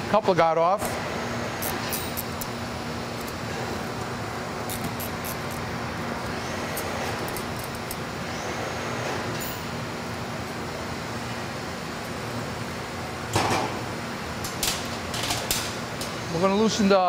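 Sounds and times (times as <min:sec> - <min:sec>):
workshop background hum: 0:00.0 - 0:17.0.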